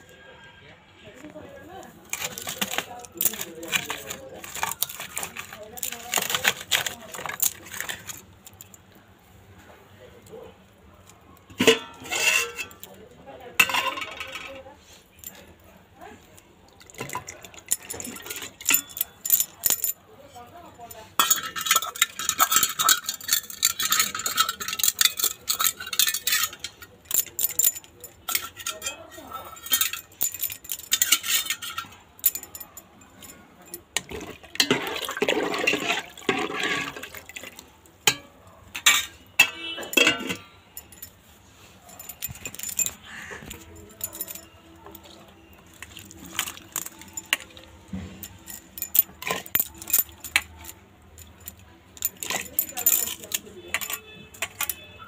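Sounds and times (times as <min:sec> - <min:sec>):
metallic clinks of cooking utensils: 0:02.1 - 0:08.8, 0:11.4 - 0:14.6, 0:16.9 - 0:55.0
grains scraping in metal bowl: 0:34.6 - 0:37.3.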